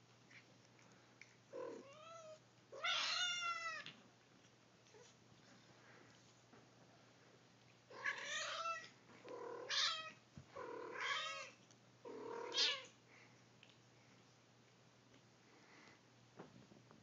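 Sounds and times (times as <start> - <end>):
cat meowing: 12.4 - 12.9.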